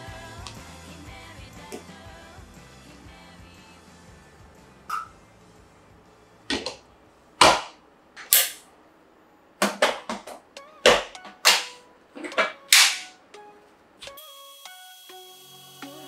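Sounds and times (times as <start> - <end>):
sharp knocks: 7.4 - 7.8.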